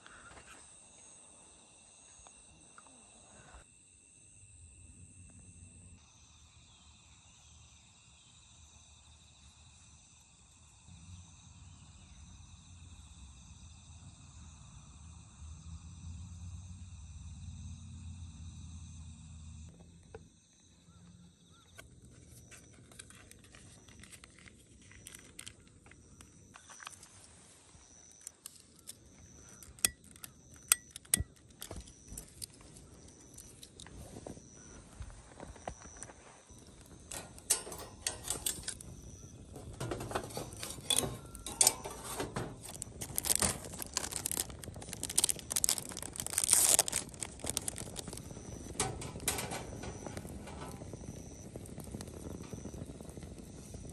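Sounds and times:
crickets trilling: 0:00.0 - 0:53.9
charcoal clacking into metal fire pit: 0:36.6 - 0:51.2.

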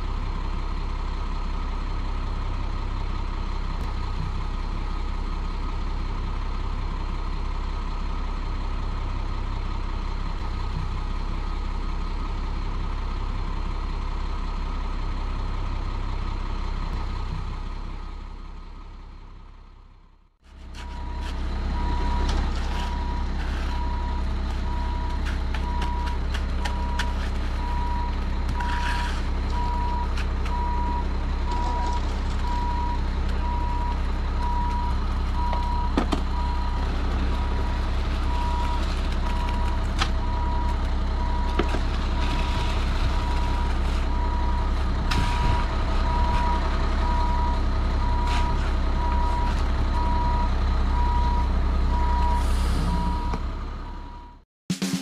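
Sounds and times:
diesel truck engine running: 0:00.0 - 0:54.4
shovel scraping wet concrete: 0:22.4 - 0:23.8, 0:27.0 - 0:27.6, 0:28.6 - 0:29.3
backup alarm beeping: 0:49.0 - 0:54.4.

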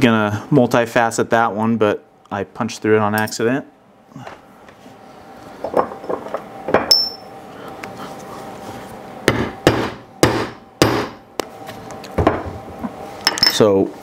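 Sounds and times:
hammer striking metal punch: 0:09.3 - 0:11.2.

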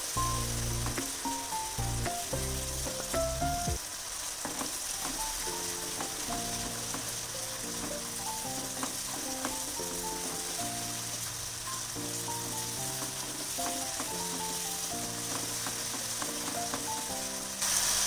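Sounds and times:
food sizzling in hot oil: 0:00.0 - 0:18.0
soft slow background music: 0:05.2 - 0:18.0.

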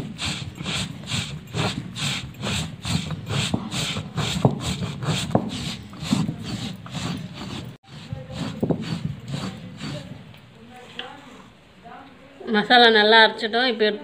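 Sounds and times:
stone roller grinding spices: 0:00.0 - 0:10.8.

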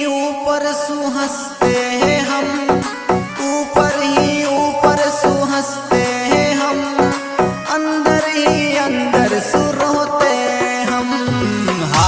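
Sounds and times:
melody of held notes: 0:01.6 - 0:09.8
drum beats: 0:01.6 - 0:12.0.

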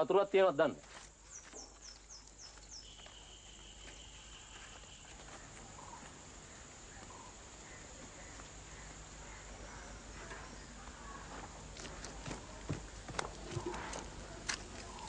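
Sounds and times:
high insect drone: 0:00.9 - 0:11.6
steady high whistle: 0:02.8 - 0:05.2.

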